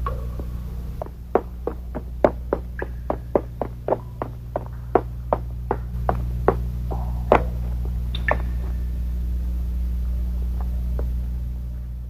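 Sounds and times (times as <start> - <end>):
low droning hum: 0.0 - 12.0
footsteps on rocky floor: 1.0 - 8.7.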